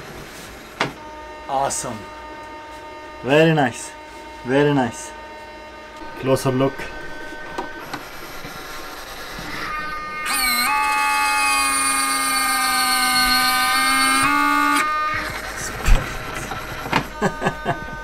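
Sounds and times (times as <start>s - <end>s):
electric motor whine: 1.0s - 18.0s.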